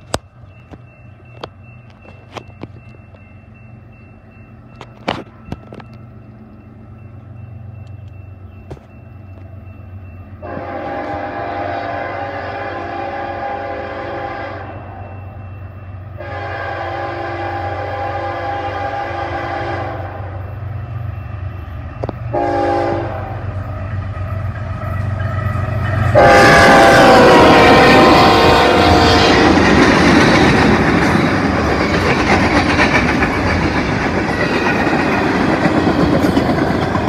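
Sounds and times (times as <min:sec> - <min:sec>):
train air horn blasts: 0:10.4 - 0:15.2, 0:16.2 - 0:20.5, 0:22.3 - 0:23.6, 0:24.9 - 0:29.6.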